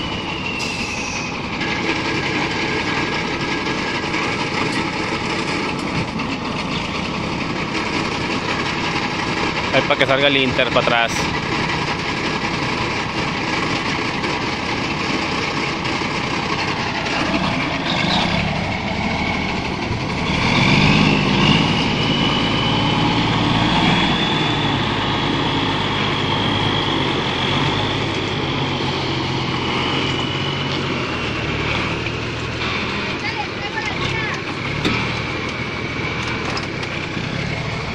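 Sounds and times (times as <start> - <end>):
diesel truck engine running: 0.0 - 37.9
high steady whine: 0.0 - 37.9.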